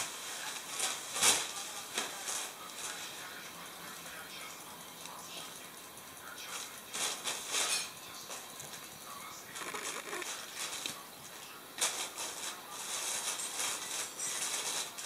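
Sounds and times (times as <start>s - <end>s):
plastic bag rustling: 0.0s - 3.2s, 11.8s - 15.0s.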